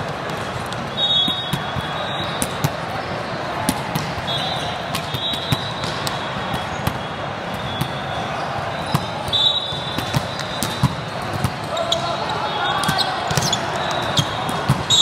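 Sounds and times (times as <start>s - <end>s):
hubbub of many voices: 0.0s - 15.0s
volleyballs hit and bouncing: 0.0s - 15.0s
referee whistle tones: 1.0s - 2.4s, 4.2s - 10.9s, 11.7s - 15.0s.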